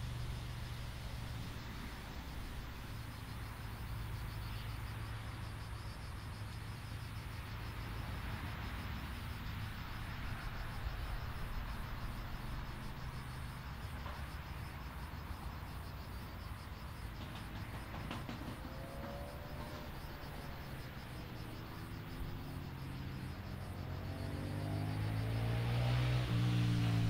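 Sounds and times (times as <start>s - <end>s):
insects chirping: 0.0s - 27.0s
distant jet engines running: 15.2s - 27.0s.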